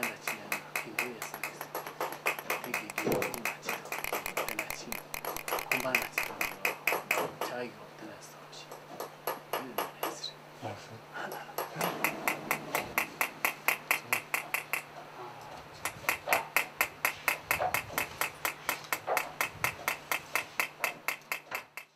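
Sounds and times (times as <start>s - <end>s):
hammer striking metal: 0.0s - 7.3s, 11.9s - 14.9s, 15.8s - 21.9s.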